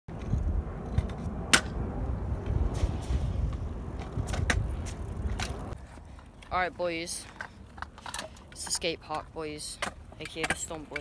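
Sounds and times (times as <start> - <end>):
scooter wheels rolling on concrete: 0.1 - 11.0
scooter clacking on concrete: 6.5 - 11.0.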